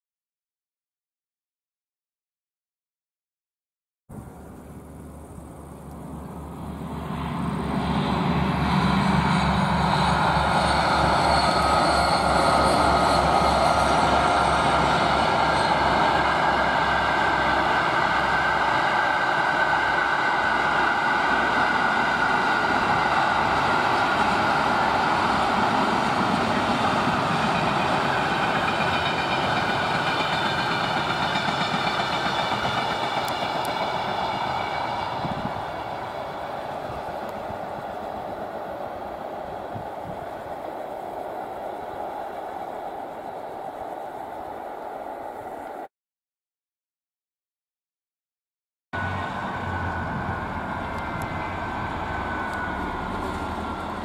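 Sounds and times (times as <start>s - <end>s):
diesel locomotive engine rumble: 4.1s - 45.9s, 49.0s - 54.0s
train wagons rolling past: 4.2s - 45.9s, 49.0s - 54.0s
high whine: 49.0s - 54.0s.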